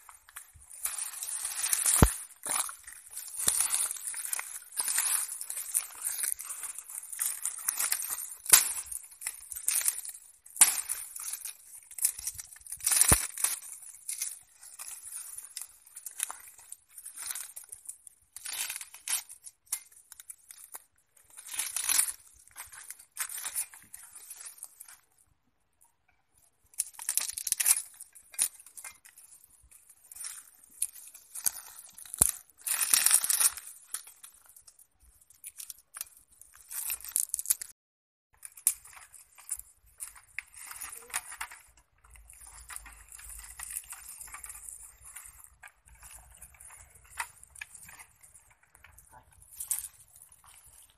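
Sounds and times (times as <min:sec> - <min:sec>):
knife shaving and splitting bamboo: 0:00.0 - 0:20.6, 0:38.4 - 0:50.9.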